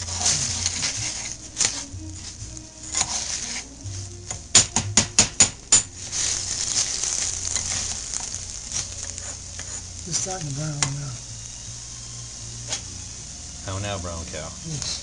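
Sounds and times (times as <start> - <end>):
metal spoon scraping pot: 0.0 - 1.9, 2.8 - 3.7, 8.8 - 9.9
rice sizzling in hot oil: 0.0 - 15.0.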